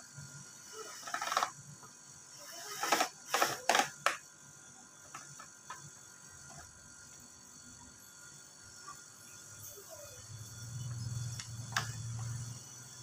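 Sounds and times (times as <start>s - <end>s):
cordless drill driving screws: 2.4s - 3.9s.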